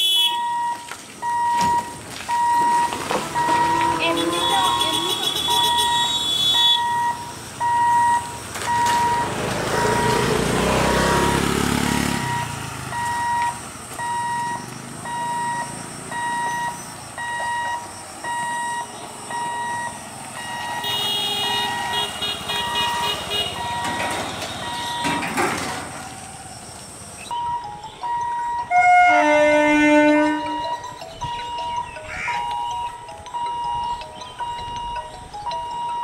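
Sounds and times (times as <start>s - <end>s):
level crossing warning beeps: 0.3s - 25.4s, 27.2s - 36.0s
vehicle passing loudly: 2.4s - 6.2s, 6.8s - 17.4s
fast high-pitched beeping: 27.3s - 28.9s, 30.3s - 36.0s.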